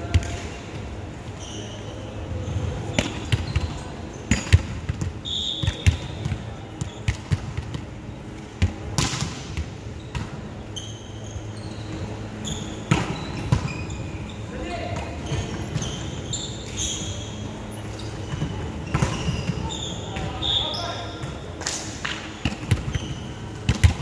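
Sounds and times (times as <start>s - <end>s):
shoe squeaks: 1.3s - 4.5s, 10.0s - 21.6s, 22.9s - 23.6s.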